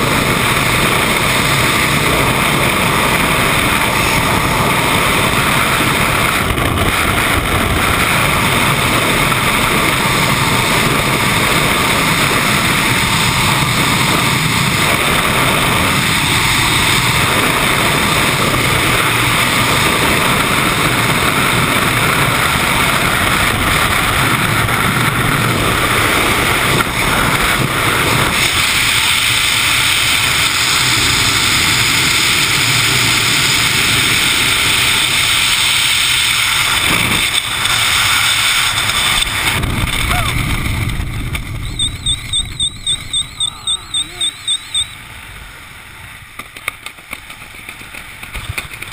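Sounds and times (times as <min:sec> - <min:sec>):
wind rushing over microphone: 0:00.0 - 0:48.9.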